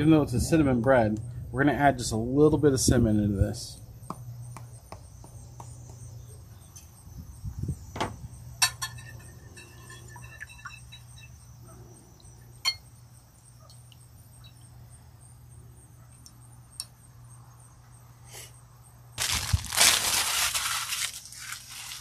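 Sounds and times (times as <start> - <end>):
low steady hum: 0.0 - 19.7
whisk clinking against glass: 8.6 - 11.3.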